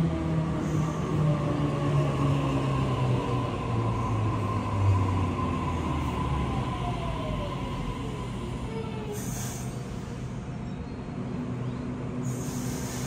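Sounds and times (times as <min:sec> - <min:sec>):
train rumbling: 0:00.0 - 0:13.0
short hiss: 0:12.2 - 0:13.0.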